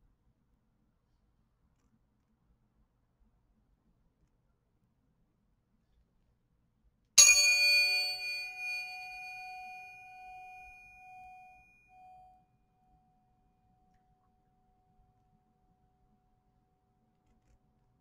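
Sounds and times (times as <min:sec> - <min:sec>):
tuning fork ringing: 0:07.2 - 0:15.4.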